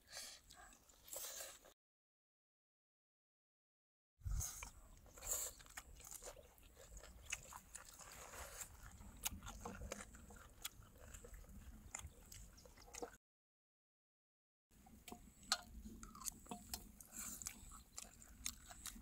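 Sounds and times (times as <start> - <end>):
person chewing crunchy food: 4.4 - 13.2, 15.2 - 19.0.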